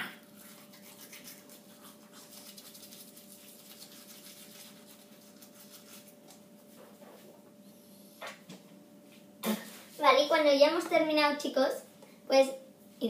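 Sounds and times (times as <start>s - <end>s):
toothbrushes scrubbing teeth: 0.3s - 6.4s.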